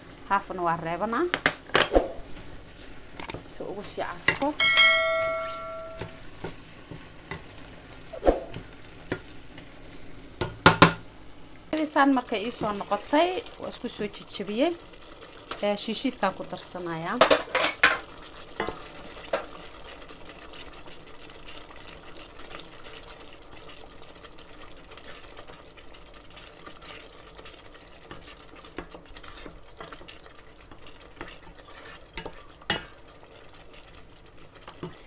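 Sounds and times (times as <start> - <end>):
sauce sizzling: 0.0 - 35.0
spoon knocking on pot: 4.3 - 6.6, 10.4 - 11.0
wooden spoon scraping a pot: 26.2 - 35.0.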